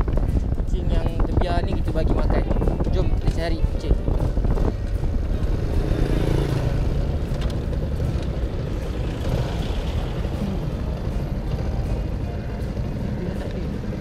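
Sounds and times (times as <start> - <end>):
road and air noise: 0.0 - 14.0
scooter engine running: 4.3 - 14.0.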